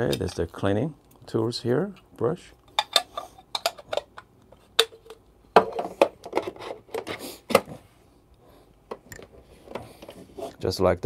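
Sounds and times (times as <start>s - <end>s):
plastic parts clicking and knocking: 2.7s - 7.7s.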